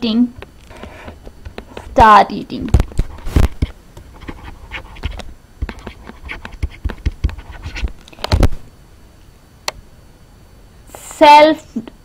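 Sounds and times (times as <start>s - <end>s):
stylus writing on tablet: 3.4s - 7.9s.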